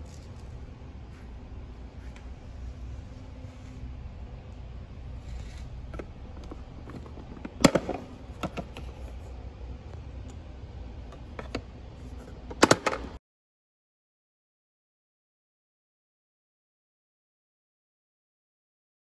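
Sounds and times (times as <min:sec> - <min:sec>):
plastic lid snapping shut: 0:06.9 - 0:08.9, 0:12.5 - 0:13.2.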